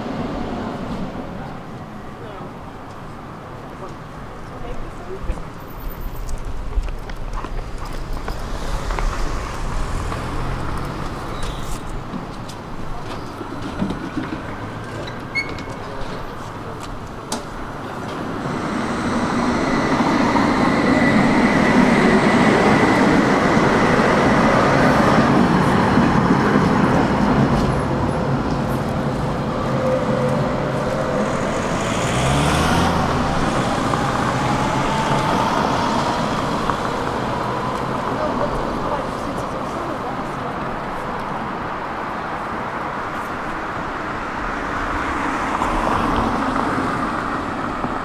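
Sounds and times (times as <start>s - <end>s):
street traffic: 0.0s - 48.0s
steel wheels rumbling on rails: 5.3s - 48.0s
tram motor whine: 17.6s - 38.9s.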